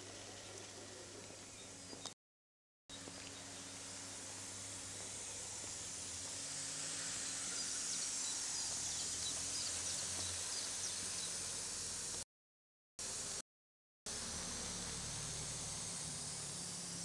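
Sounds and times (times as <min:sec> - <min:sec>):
hose water jet spraying: 0:03.0 - 0:12.2, 0:14.1 - 0:17.0.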